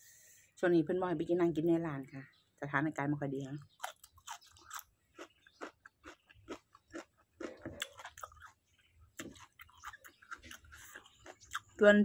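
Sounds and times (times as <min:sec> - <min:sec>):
chewing crisp vegetables: 0:03.5 - 0:12.0.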